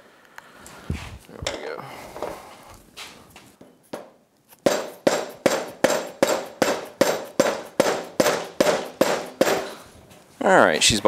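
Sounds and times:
hammer striking metal: 4.0s - 9.8s.

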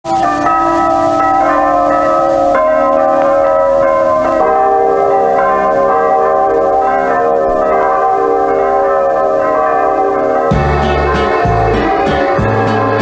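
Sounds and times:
church bells ringing: 0.1s - 13.0s.

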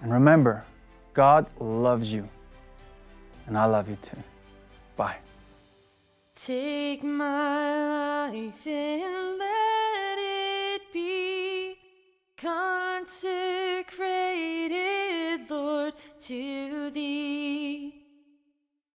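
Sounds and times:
woman singing slow melody: 6.4s - 18.2s.

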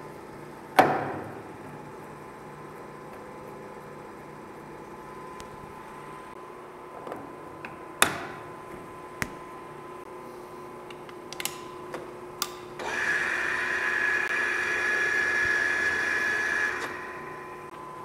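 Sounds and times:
metal lathe whining: 12.8s - 17.7s.

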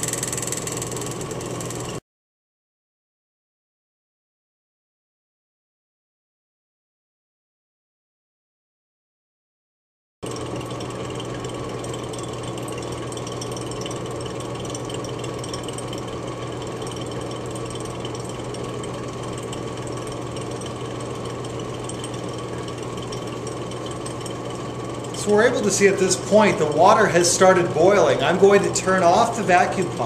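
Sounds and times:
vacuum pump motor hum: 0.0s - 2.0s, 10.2s - 30.0s.

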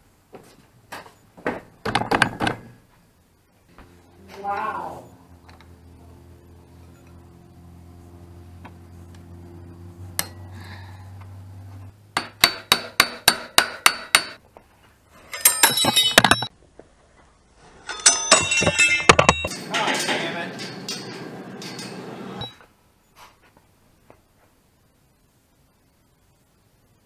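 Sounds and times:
low steady hum: 2.7s - 16.6s
hammer striking metal: 12.2s - 14.4s, 17.9s - 22.5s.

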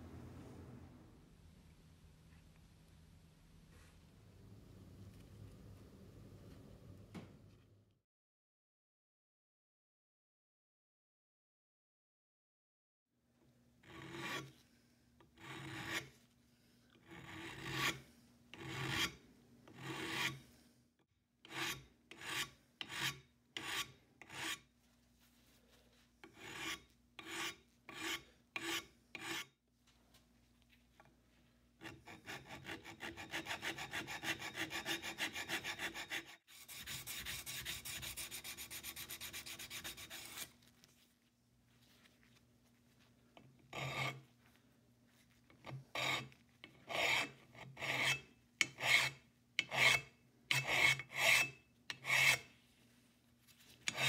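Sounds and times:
hand file rasping on metal: 13.8s - 14.6s, 15.3s - 16.1s, 17.0s - 20.4s, 21.4s - 24.7s, 26.2s - 29.5s, 31.8s - 40.5s, 43.7s - 44.2s, 45.6s - 52.5s.

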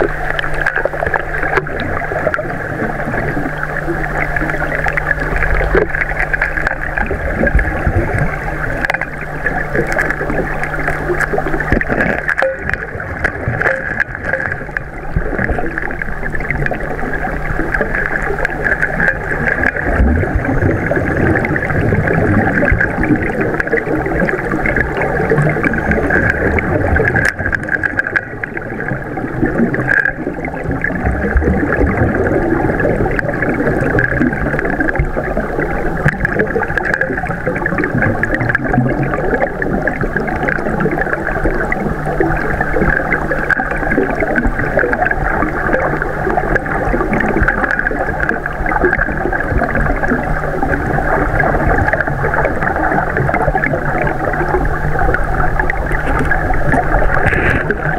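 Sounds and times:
low steady hum: 0.0s - 57.9s
rushing water underwater: 0.0s - 57.9s.

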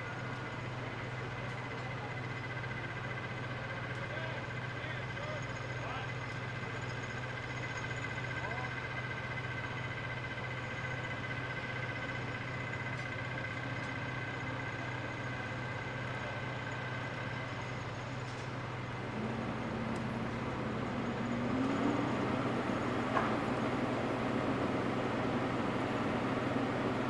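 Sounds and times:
diesel excavator engines humming: 0.0s - 27.0s
higher engine note: 19.0s - 27.0s.

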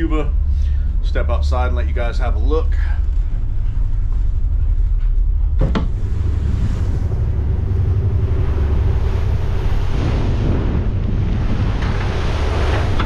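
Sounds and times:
choppy sea rushing: 0.0s - 13.0s
steady low rumble: 0.0s - 13.0s
wind buffeting microphone: 0.0s - 13.0s
door opening clunk: 5.6s - 6.0s.

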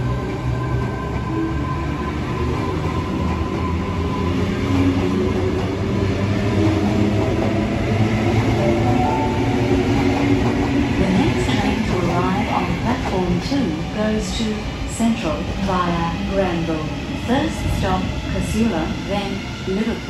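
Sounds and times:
train wheels rumbling on rail: 0.0s - 20.0s.

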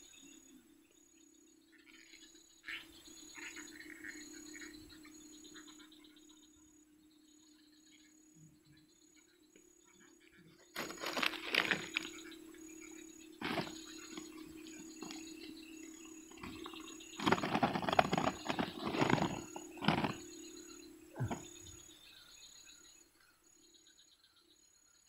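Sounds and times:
faint insect chirring: 0.0s - 25.0s
steady low hum: 0.0s - 25.0s
plastic bag rustling: 10.8s - 12.1s, 13.4s - 13.8s, 17.2s - 20.3s.

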